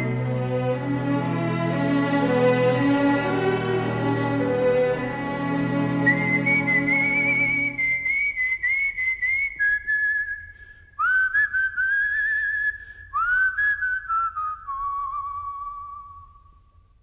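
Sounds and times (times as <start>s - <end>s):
person whistling slow tune: 5.7s - 16.5s.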